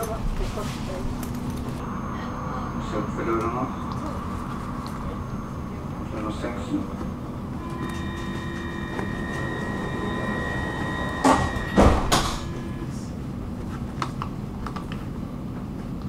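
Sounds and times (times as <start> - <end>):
multi-pitched warning tone: 1.0 - 13.6
train doors shutting with thumps: 6.6 - 13.2.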